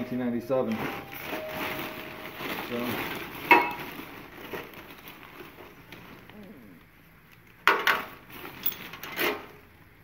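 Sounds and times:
plastic garbage bag rustling: 0.0 - 6.4, 7.8 - 9.6
objects clattering together: 0.7 - 6.2, 7.6 - 9.6.

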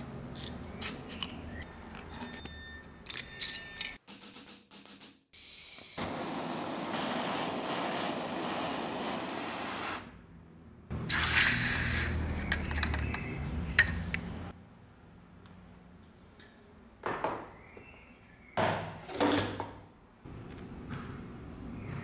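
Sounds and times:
gas torch flame hissing: 6.0 - 10.1, 11.1 - 12.2.

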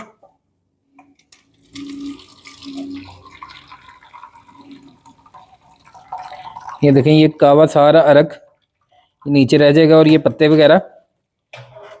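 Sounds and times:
tea pouring through a strainer: 1.5 - 9.6.

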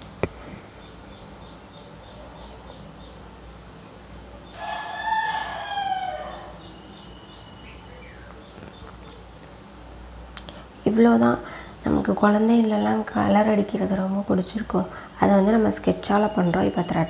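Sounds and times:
faint high chirps: 4.3 - 9.4
rooster crowing: 4.5 - 7.5.

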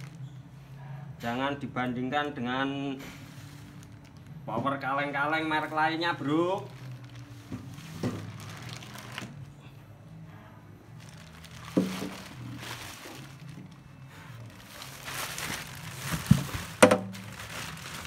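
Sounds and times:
plastic wrapping crinkling: 0.0 - 0.4, 3.2 - 9.5, 10.9 - 18.0.

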